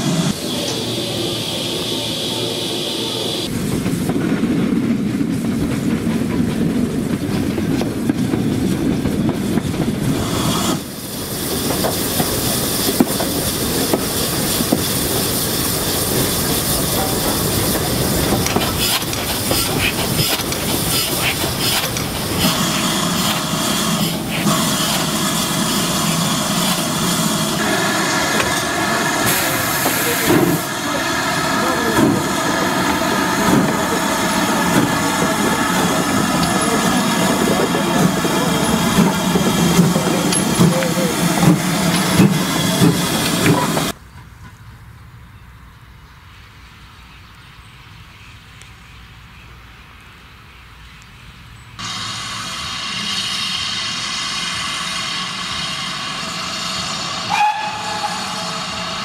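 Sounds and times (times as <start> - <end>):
steam hissing: 0.0 - 5.6, 7.0 - 44.0, 51.8 - 59.0
train low rumble: 0.0 - 47.0, 50.8 - 59.0
wheels clicking over rail joints: 11.5 - 25.2, 31.6 - 44.6.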